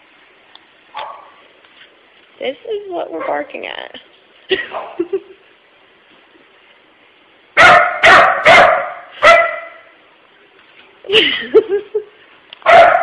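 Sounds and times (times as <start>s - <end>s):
puppy barking: 0.9s - 1.4s, 7.6s - 9.9s, 12.6s - 13.0s
puppy yipping: 7.6s - 9.8s, 12.7s - 13.0s.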